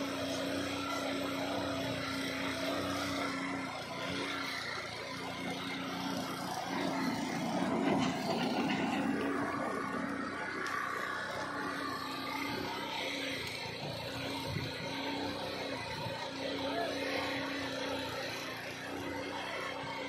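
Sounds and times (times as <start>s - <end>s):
petrol engine humming: 0.0s - 20.0s.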